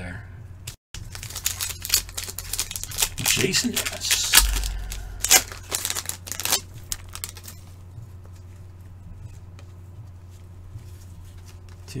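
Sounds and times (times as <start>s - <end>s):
wrapper crinkling and tearing: 1.0s - 7.8s.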